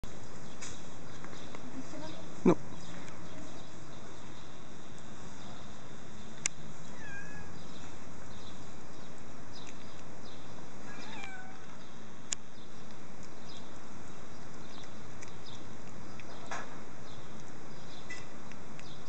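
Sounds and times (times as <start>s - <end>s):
cat meowing: 6.9s - 7.6s, 10.8s - 11.7s
sharp clicks: 12.3s - 13.9s, 14.5s - 16.7s.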